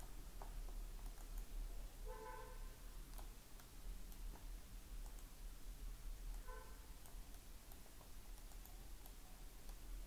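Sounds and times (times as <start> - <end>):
computer mouse clicks: 0.0 - 1.6, 3.0 - 5.4, 6.2 - 10.0
low electrical hum: 0.0 - 10.0.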